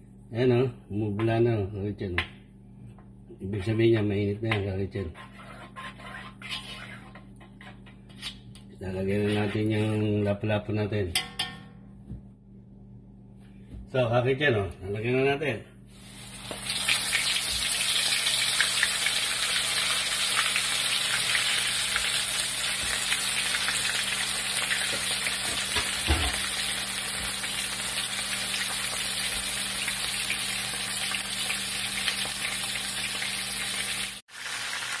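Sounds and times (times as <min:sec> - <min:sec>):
fish sizzling in hot oil: 0:16.0 - 0:35.0.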